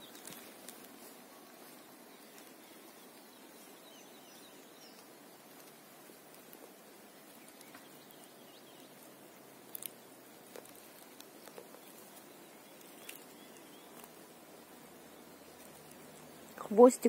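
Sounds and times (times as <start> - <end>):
faint steady hiss: 0.0 - 17.0
distant bird chirps: 6.0 - 10.2, 10.8 - 17.0.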